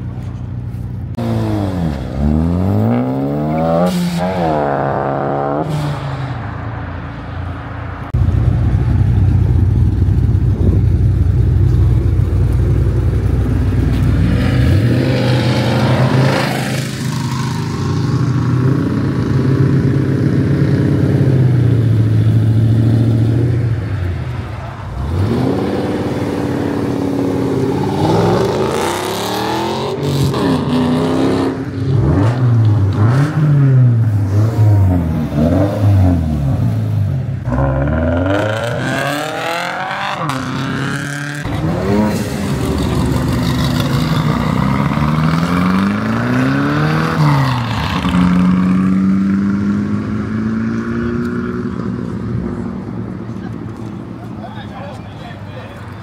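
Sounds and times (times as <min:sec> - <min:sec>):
car engines revving hard: 0:01.1 - 0:06.6, 0:08.0 - 0:54.4
deep engine rumble: 0:08.1 - 0:15.2.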